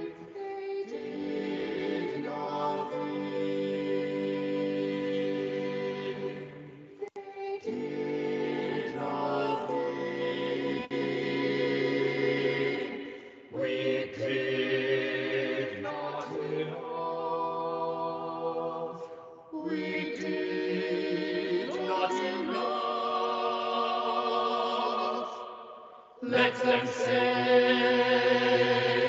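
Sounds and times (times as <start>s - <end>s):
choir singing a cappella: 0.0s - 29.0s.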